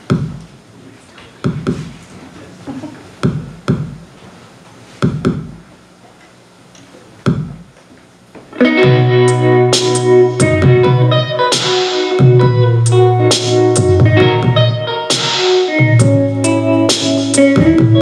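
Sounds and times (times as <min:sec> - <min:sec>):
electronic drum thuds: 0:00.0 - 0:00.6, 0:01.4 - 0:02.0, 0:03.2 - 0:04.1, 0:05.0 - 0:05.7, 0:07.2 - 0:07.8, 0:08.5 - 0:18.0
sustained keyboard chords: 0:08.6 - 0:18.0.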